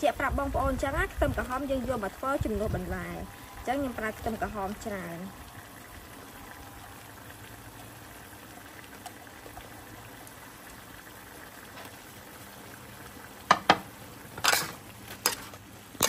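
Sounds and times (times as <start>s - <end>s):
wok simmering bubbling: 0.0s - 16.0s.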